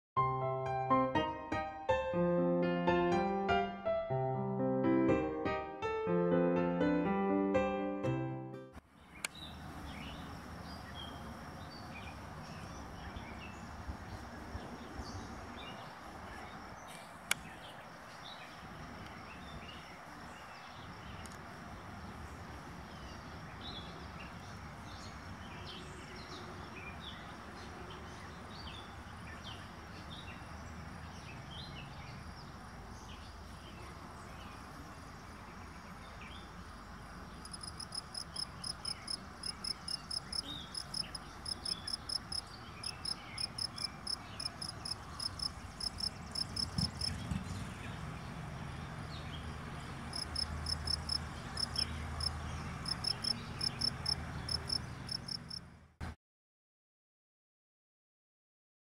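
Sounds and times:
insect chirping in high pulses: 37.4 - 46.7, 50.1 - 55.5.

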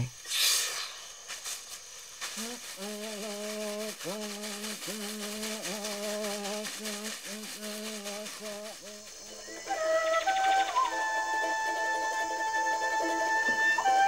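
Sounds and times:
fast steady rattling: 1.2 - 13.6
man chanting in low voice: 2.4 - 9.2
flute music: 8.2 - 14.0.

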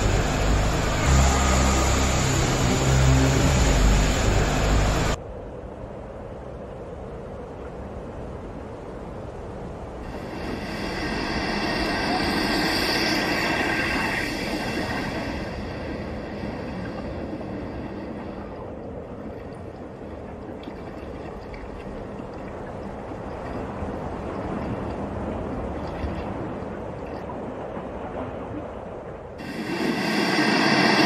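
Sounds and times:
loud rushing hiss: 0.0 - 5.2, 10.1 - 18.1, 29.4 - 31.0
wind on microphone: 0.0 - 31.0
geyser erupting: 10.1 - 15.8, 29.4 - 31.0.

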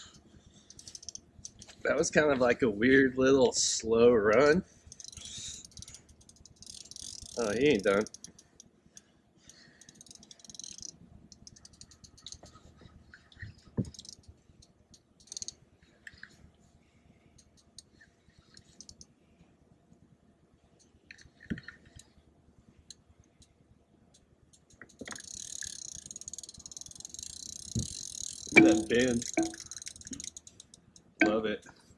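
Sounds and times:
fishing reel drag buzzing: 0.6 - 1.6, 4.9 - 8.4, 9.5 - 12.5, 13.8 - 14.3, 15.2 - 15.6, 25.0 - 30.8.

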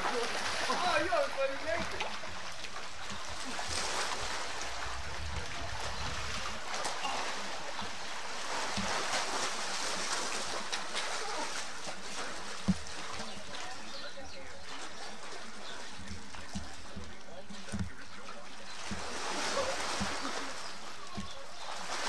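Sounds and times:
faint voices: 0.0 - 8.4, 10.9 - 22.0
rushing outdoor hiss: 3.3 - 11.4.

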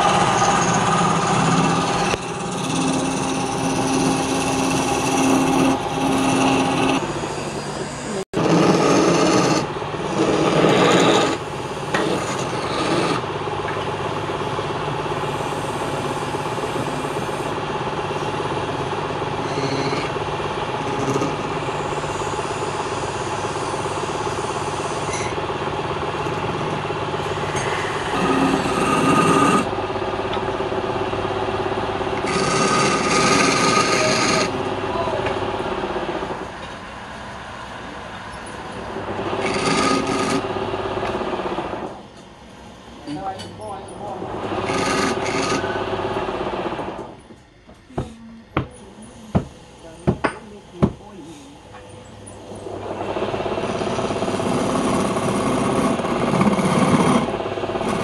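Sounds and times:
turning tool scraping wood: 0.0 - 13.2, 19.2 - 25.4, 27.2 - 29.7, 32.2 - 34.6, 39.1 - 40.5, 44.0 - 45.8, 52.5 - 58.0
wood lathe humming: 0.0 - 47.1, 49.0 - 58.0.

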